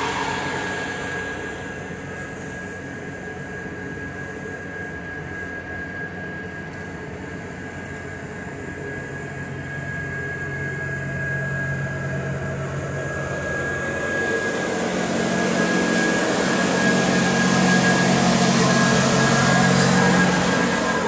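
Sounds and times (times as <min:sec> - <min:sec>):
steady high whine: 0:00.0 - 0:21.0
train hum and rumble: 0:00.0 - 0:21.0.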